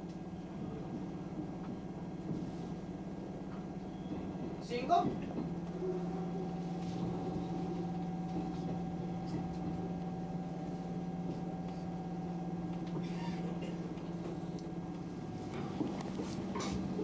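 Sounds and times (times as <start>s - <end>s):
electric train hum: 0.0s - 17.0s.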